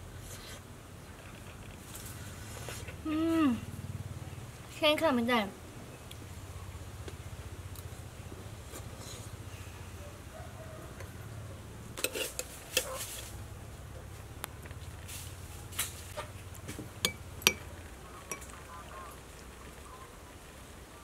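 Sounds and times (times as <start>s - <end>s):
spoon clinking on ceramic bowls: 18.3s - 18.5s.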